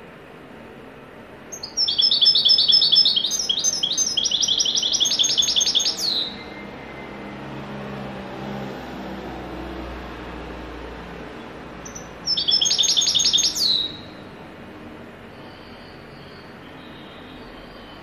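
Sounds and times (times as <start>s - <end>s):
goldfinch singing high notes: 1.5s - 6.8s, 11.8s - 14.2s.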